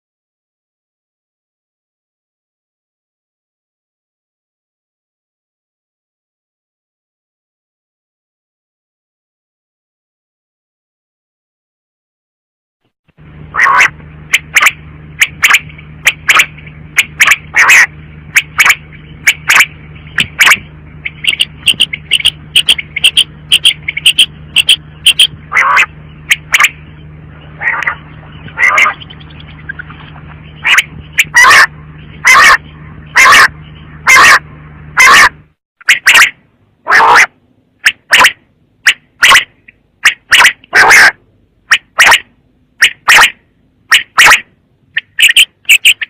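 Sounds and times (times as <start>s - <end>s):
steady low hum: 13.1s - 46.0s
quail calling: 13.5s - 46.0s.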